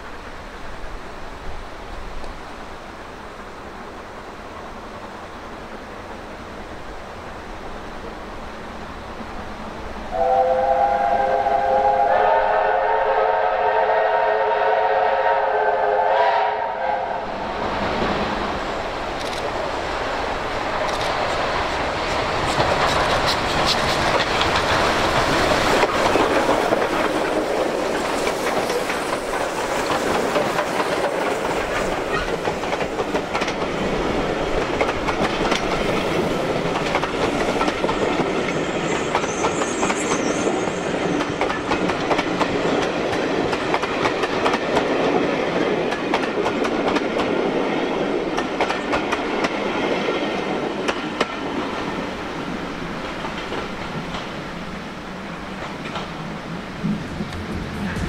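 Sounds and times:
steam locomotives passing: 0:00.0 - 0:58.0
steam whistles chord: 0:10.1 - 0:17.3
train wheels clickety-clack: 0:19.1 - 0:52.2, 0:53.0 - 0:54.7, 0:55.5 - 0:58.0.

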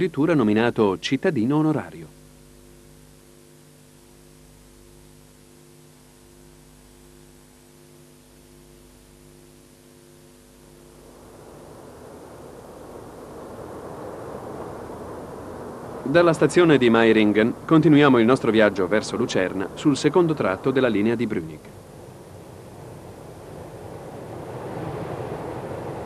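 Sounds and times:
electric train hum: 0:02.0 - 0:26.0
rushing noise: 0:10.9 - 0:26.0.

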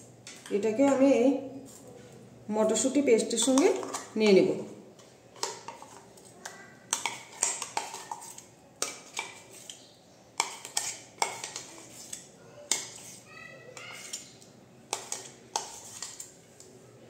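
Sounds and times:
metal spoon scraping and clinking: 0:06.9 - 0:09.8, 0:10.4 - 0:13.2, 0:13.8 - 0:16.4.

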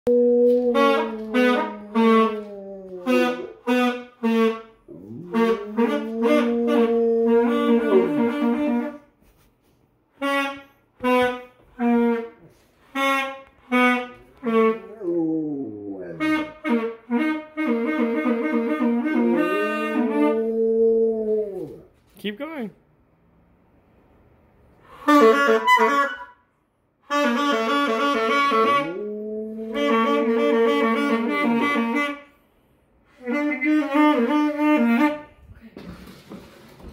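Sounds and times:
dog howling: 0:00.1 - 0:03.6, 0:04.9 - 0:08.8, 0:14.8 - 0:16.4
saxophone short repeated notes: 0:03.0 - 0:09.0.

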